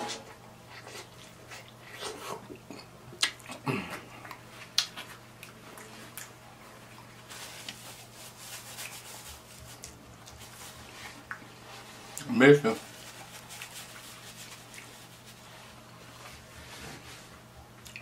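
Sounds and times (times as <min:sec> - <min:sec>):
wet chewing and lip smacks: 0:00.7 - 0:07.8, 0:11.2 - 0:11.5, 0:17.8 - 0:18.0
paper napkin rustling: 0:07.2 - 0:17.5.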